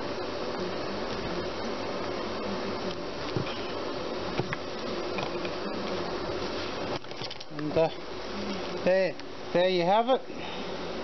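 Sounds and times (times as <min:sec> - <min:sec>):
steady buzzing hum: 0:00.0 - 0:11.0.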